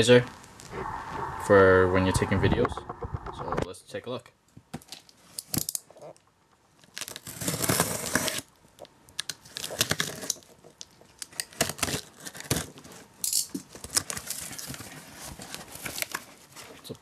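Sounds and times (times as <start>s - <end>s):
packing tape tearing: 6.8s - 8.5s, 9.2s - 10.5s, 11.2s - 12.9s.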